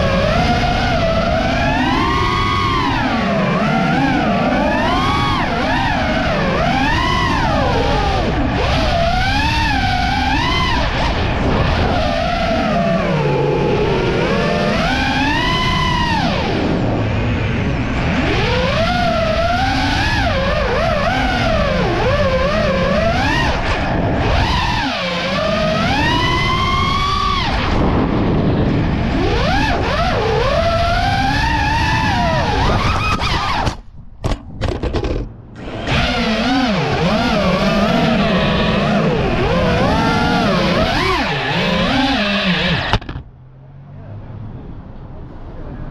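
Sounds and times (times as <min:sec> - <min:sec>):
drone motors and propellers whining: 0:00.0 - 0:45.9.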